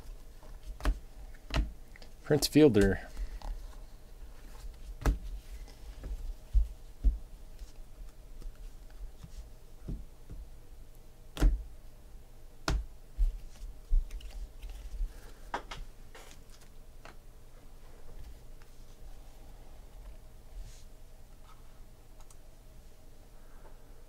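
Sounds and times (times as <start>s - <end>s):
cards being handled: 13.3s - 17.2s.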